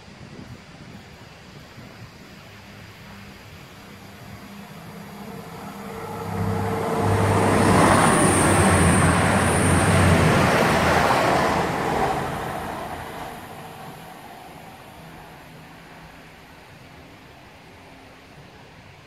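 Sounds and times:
diesel train passing: 2.1s - 19.0s
wheels rushing over rails: 2.4s - 15.5s
high whine: 2.8s - 15.7s.

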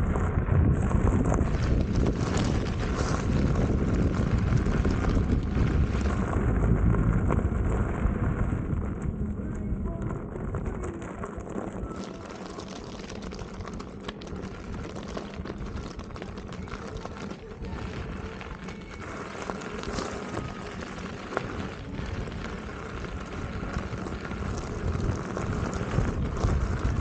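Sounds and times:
unicycle rolling over gravel: 0.0s - 27.0s
wind buffeting microphone: 0.0s - 27.0s.

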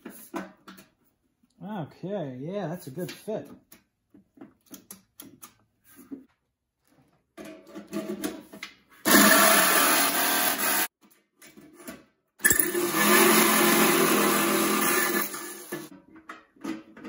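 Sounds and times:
jigsaw cutting metal: 9.0s - 11.0s, 12.4s - 15.9s.

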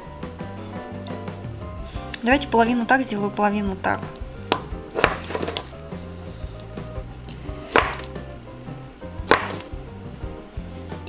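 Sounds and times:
knife chopping onto wooden worktop: 4.5s - 5.7s, 7.7s - 8.2s, 9.2s - 9.7s.

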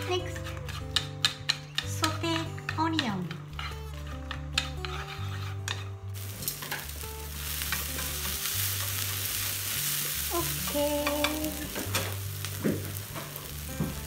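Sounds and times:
onions sizzling in a frying pan: 5.4s - 14.0s.

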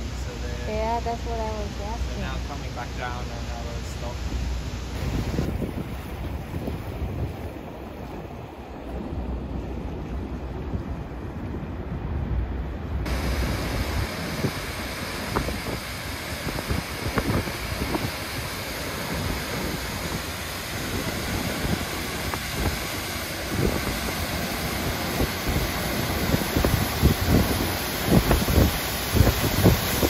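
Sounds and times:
wind buffeting microphone: 4.2s - 30.0s
waterfall rushing: 13.1s - 30.0s.

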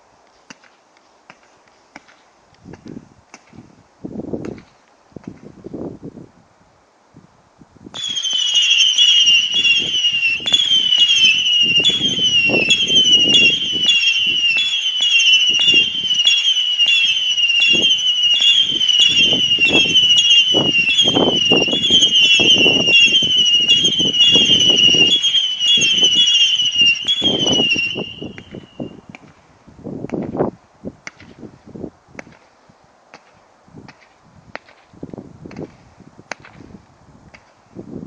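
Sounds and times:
firework whistles: 8.0s - 29.2s.

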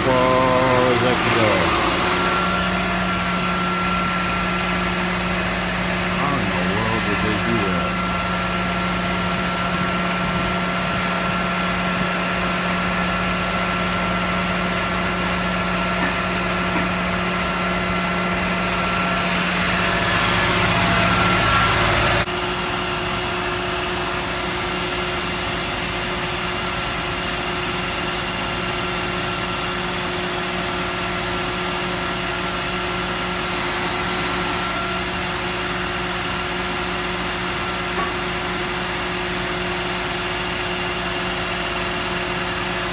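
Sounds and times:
thin high whine: 0.0s - 10.2s, 32.0s - 38.4s
machinery low hum: 0.0s - 26.0s, 29.3s - 42.9s
rushing noise: 32.8s - 36.4s.

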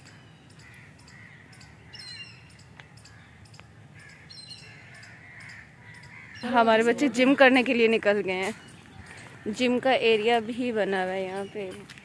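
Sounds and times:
birds chirping: 0.0s - 12.0s
crows cawing: 0.5s - 7.8s, 8.8s - 10.7s.

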